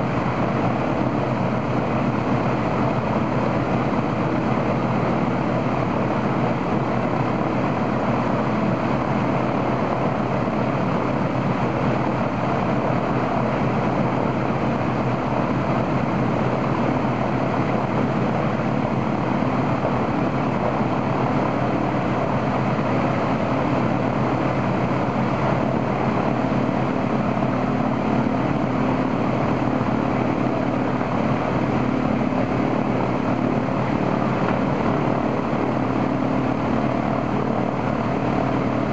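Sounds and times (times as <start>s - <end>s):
radial aircraft engine running: 0.0s - 38.9s.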